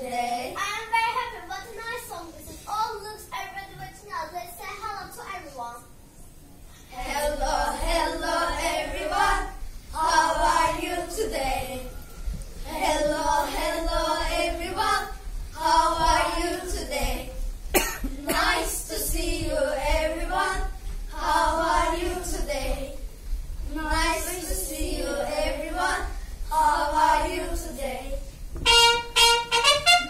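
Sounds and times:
children singing together: 0:06.9 - 0:23.1, 0:23.7 - 0:28.3.

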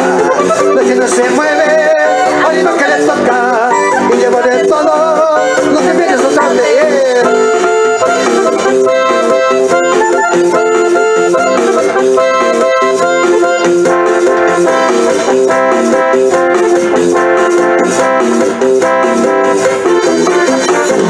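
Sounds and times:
electronic keyboard melody: 0:00.0 - 0:21.0
steady percussion beat: 0:00.0 - 0:21.0.

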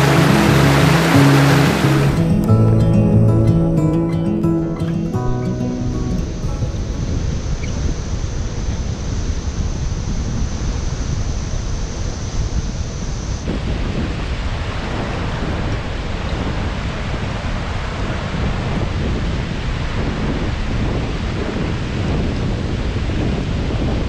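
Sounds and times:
whitewater rapids rushing: 0:00.0 - 0:02.4
wind buffeting microphone: 0:00.0 - 0:03.6, 0:06.2 - 0:24.0
rushing water: 0:00.0 - 0:07.8.

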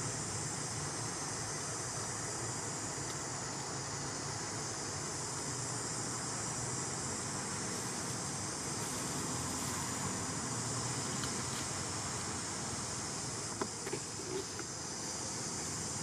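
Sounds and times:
insect chorus: 0:00.0 - 0:16.0.

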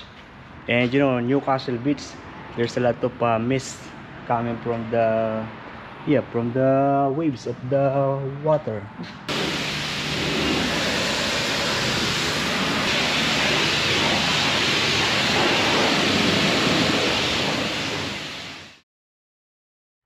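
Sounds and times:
high-pressure water spray hissing: 0:09.3 - 0:18.8.

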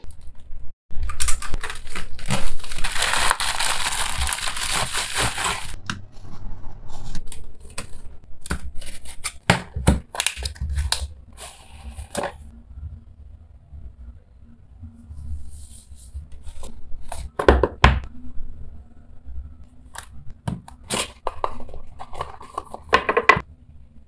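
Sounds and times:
plastic bag tearing: 0:00.9 - 0:05.8
rustles and clicks of box opening: 0:20.7 - 0:23.4.

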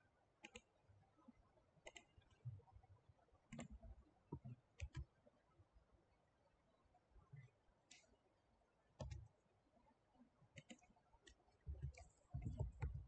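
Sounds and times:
computer mouse clicks: 0:00.4 - 0:00.7, 0:01.8 - 0:02.4, 0:03.5 - 0:05.1, 0:07.9 - 0:08.1, 0:09.0 - 0:09.3, 0:10.6 - 0:13.0
soft low thumps: 0:11.7 - 0:13.0.

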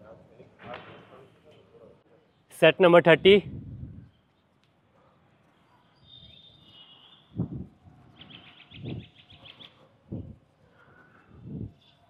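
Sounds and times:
small birds chirping: 0:03.9 - 0:12.0.

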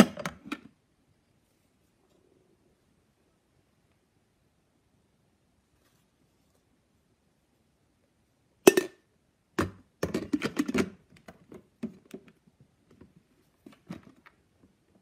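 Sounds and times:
plastic coffee maker parts handled: 0:09.6 - 0:14.3.

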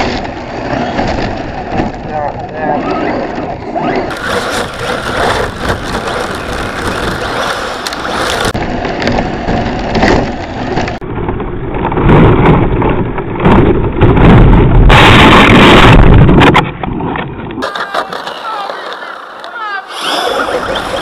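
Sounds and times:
rc car running over snow: 0:00.0 - 0:11.0, 0:17.6 - 0:21.0.

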